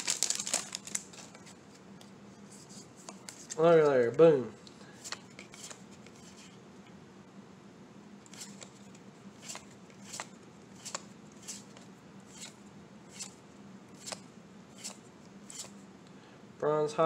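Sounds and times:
cards being flipped by hand: 0:00.0 - 0:04.0, 0:05.0 - 0:06.5, 0:08.3 - 0:15.8.

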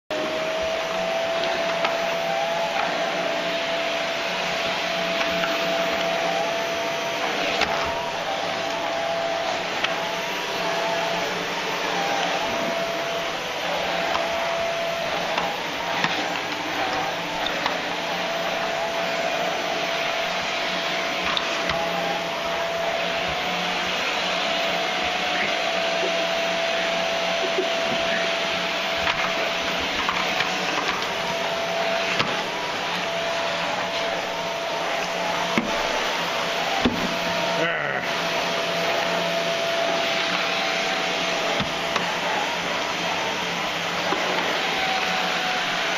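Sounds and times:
vacuum cleaner running: 0:00.1 - 0:45.9.

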